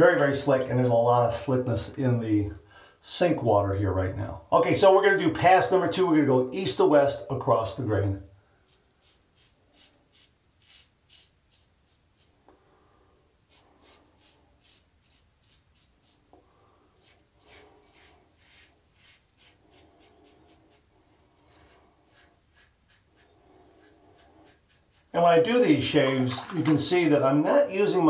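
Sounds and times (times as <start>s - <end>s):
razor scraping beard stubble: 8.6s - 12.5s, 13.4s - 25.2s.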